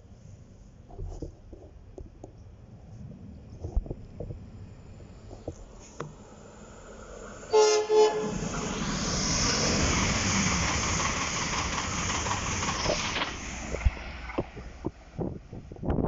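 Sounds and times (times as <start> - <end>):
train wheels rushing on rail: 5.2 - 16.0
train horn blasts: 7.5 - 8.6.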